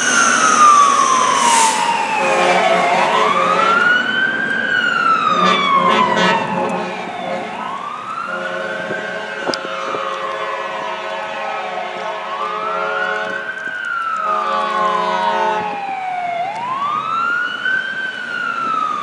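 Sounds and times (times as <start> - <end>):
air horn blast: 0.0 - 4.0, 5.3 - 13.5, 14.2 - 15.8
fire engine siren wailing: 0.0 - 19.0.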